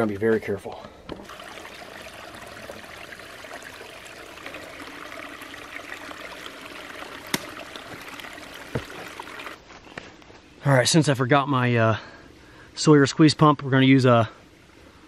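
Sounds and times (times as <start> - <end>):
stream trickling over rocks: 1.2 - 9.6.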